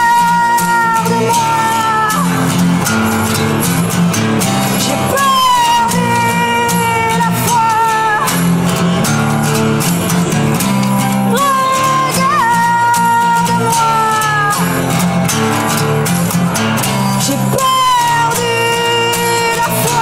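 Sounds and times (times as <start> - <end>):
woman singing wordless notes: 0.0 - 2.6, 4.7 - 8.8, 11.3 - 14.9, 17.2 - 20.0
acoustic guitar strumming: 0.0 - 20.0.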